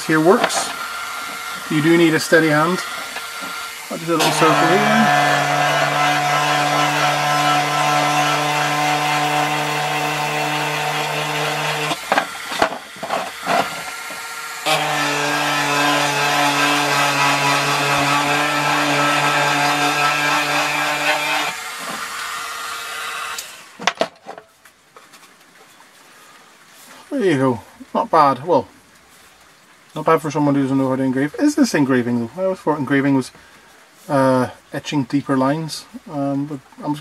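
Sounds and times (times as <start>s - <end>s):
rotary engraver whining on metal: 0.1s - 22.0s.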